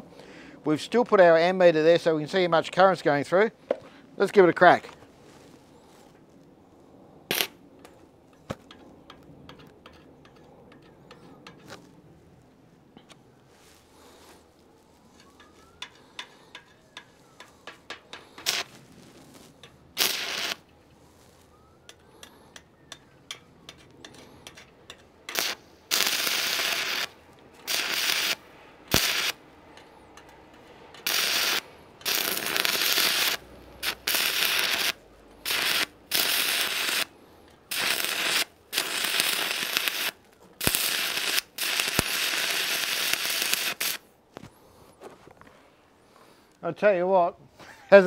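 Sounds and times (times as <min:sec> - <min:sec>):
welding arc crackling and sizzling: 0:07.3 - 0:07.5, 0:17.5 - 0:20.6, 0:25.3 - 0:29.4, 0:31.0 - 0:37.1, 0:37.7 - 0:44.0.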